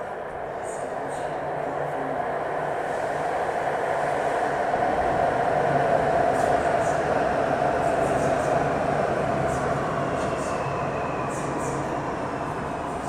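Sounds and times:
train wheels rushing on rails: 0:00.0 - 0:13.0.

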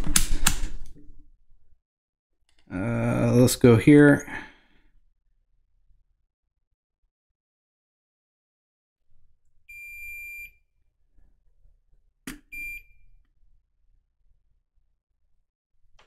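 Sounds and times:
multimeter continuity beeps: 0:09.7 - 0:10.6, 0:12.5 - 0:13.0.

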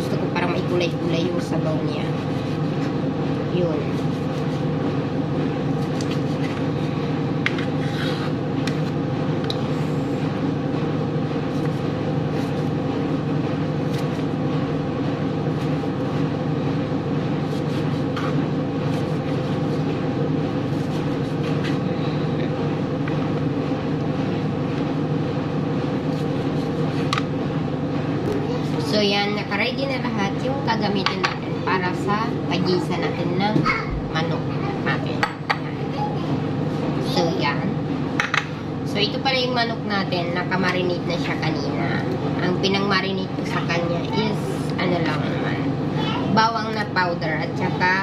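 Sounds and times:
steady mechanical hum: 0:00.0 - 0:48.0
knife slicing on cutting board: 0:13.8 - 0:14.3.

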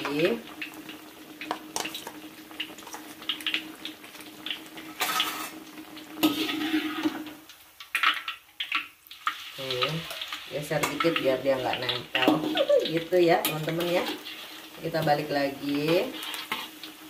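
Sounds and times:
food frying in hot oil: 0:00.0 - 0:17.0
metal spatula scraping a wok: 0:04.9 - 0:05.6, 0:06.2 - 0:07.3, 0:13.3 - 0:15.0, 0:15.7 - 0:16.9.

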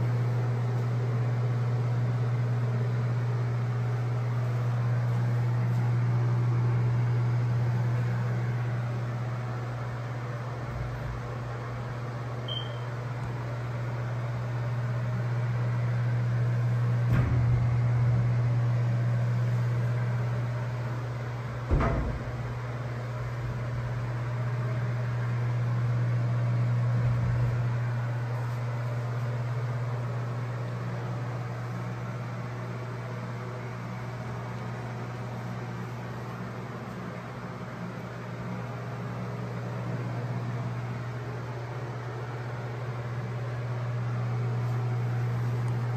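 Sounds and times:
low mechanical hum: 0:00.0 - 0:45.9
soft low thud: 0:21.7 - 0:22.6.

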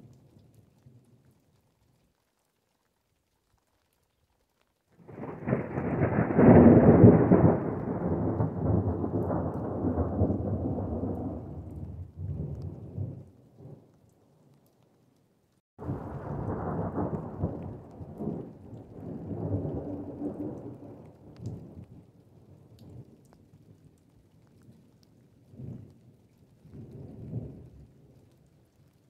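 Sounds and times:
thunder rolling: 0:05.0 - 0:13.2, 0:15.8 - 0:21.1.

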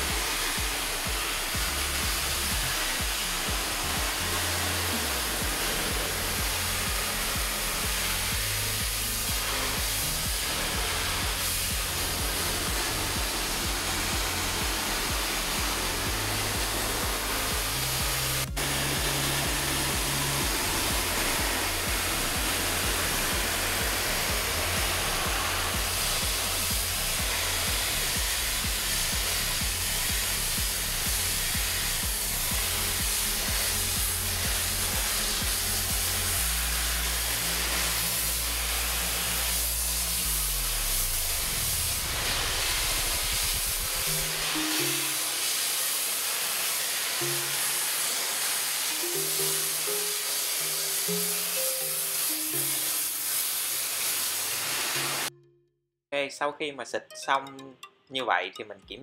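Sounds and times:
background music with bass: 0:00.0 - 0:45.2
water jet hissing: 0:00.0 - 0:55.3.

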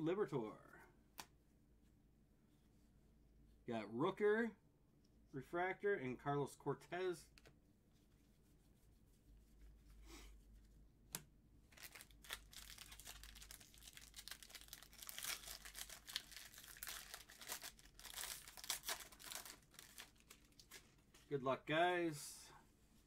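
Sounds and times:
foil wrapper crinkling and tearing: 0:11.7 - 0:21.0.

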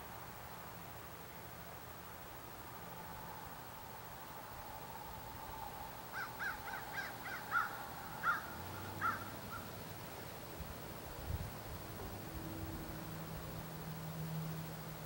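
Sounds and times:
faint steady hum: 0:00.0 - 0:15.0
bird calling: 0:06.2 - 0:09.7.

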